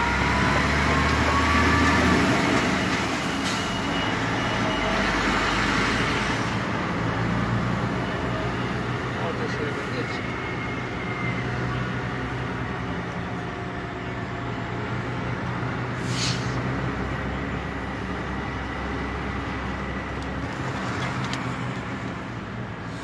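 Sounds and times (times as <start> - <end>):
diesel engine droning: 0.0 - 23.0
road noise: 0.0 - 23.0
short hiss: 16.0 - 16.6.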